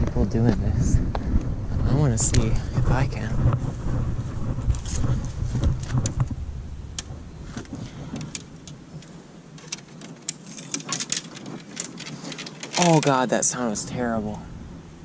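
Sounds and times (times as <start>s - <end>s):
wind rumble on microphone: 0.0s - 15.0s
fishing reels clicking: 9.6s - 13.2s.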